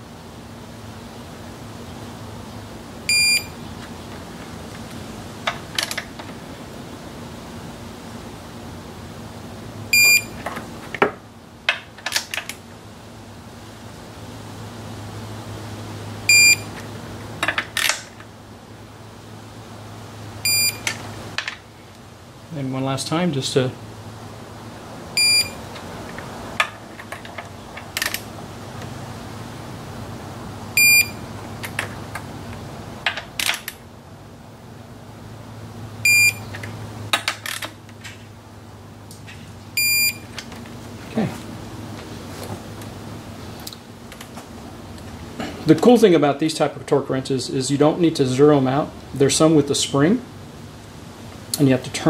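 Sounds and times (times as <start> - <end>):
short electronic beep: 3.1 - 3.5, 10.0 - 10.4, 16.3 - 16.7, 20.4 - 20.9, 25.2 - 25.6, 30.8 - 31.2, 36.1 - 36.4, 39.8 - 40.2.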